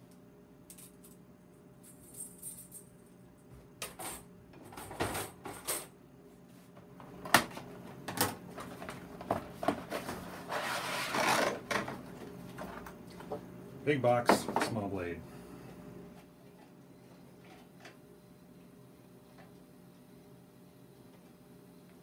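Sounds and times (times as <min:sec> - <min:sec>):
blade scraping out of box: 0:10.4 - 0:11.6.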